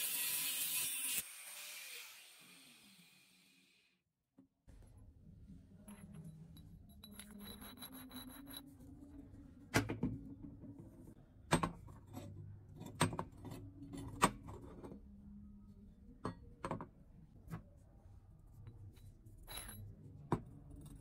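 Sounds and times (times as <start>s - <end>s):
metal clinks and knocks: 5.8s - 8.8s, 18.9s - 21.0s.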